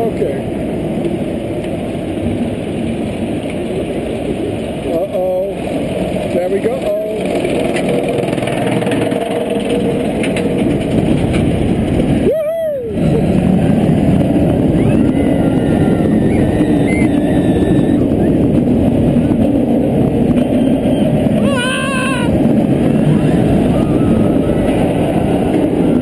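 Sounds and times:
roller coaster train rumbling on track: 0:00.0 - 0:26.0
wind rushing over microphone: 0:00.0 - 0:26.0
person yelling: 0:21.4 - 0:22.4.

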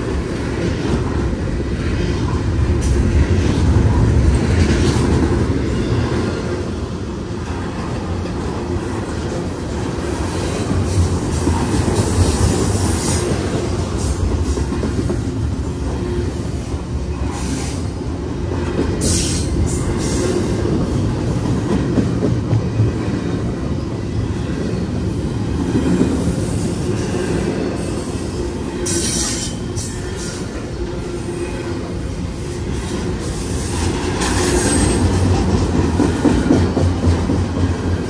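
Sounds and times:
train wheels rumbling on track: 0:00.0 - 0:38.0
train wheels screeching: 0:09.4 - 0:38.0.

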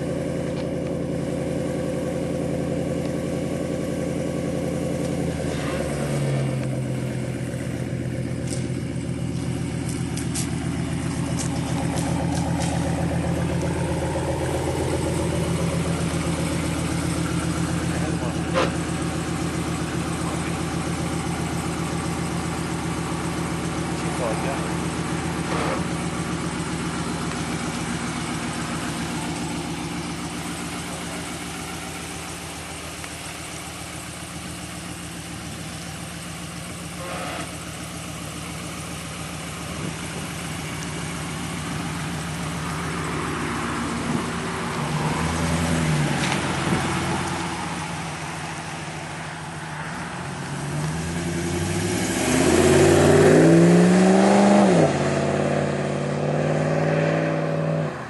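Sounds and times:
truck engine idling: 0:00.0 - 0:53.6
truck accelerating and driving past: 0:42.2 - 0:58.0.

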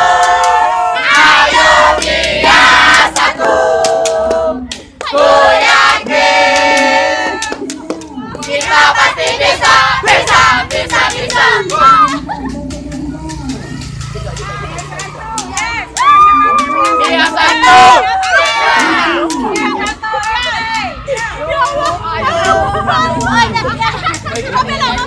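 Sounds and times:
students chanting in unison: 0:00.0 - 0:07.3, 0:08.5 - 0:11.7
hand claps: 0:01.5 - 0:05.2, 0:06.1 - 0:23.4.

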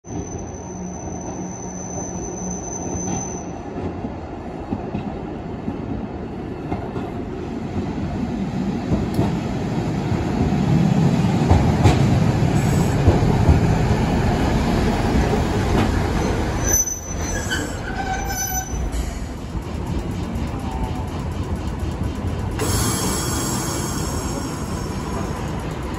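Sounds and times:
streetcar running on track: 0:00.0 - 0:25.9
streetcar wheel squeals: 0:00.1 - 0:03.7, 0:15.8 - 0:19.3.

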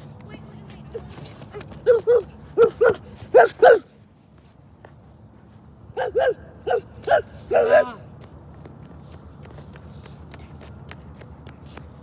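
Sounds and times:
dog barking: 0:01.9 - 0:03.9, 0:06.0 - 0:08.0.

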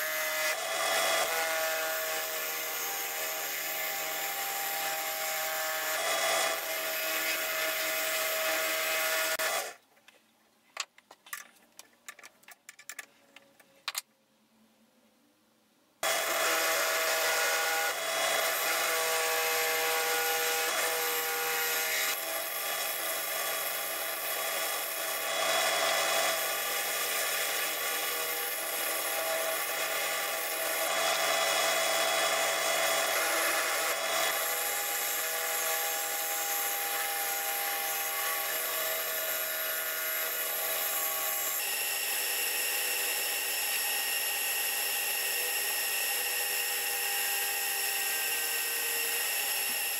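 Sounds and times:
drill press motor whining: 0:16.0 - 0:49.9.

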